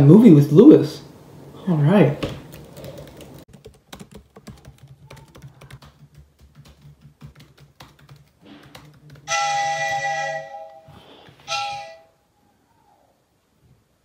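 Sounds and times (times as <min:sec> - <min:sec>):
fast typing on laptop keyboard: 0:02.3 - 0:09.3
phone ringtone chiming: 0:09.3 - 0:12.1.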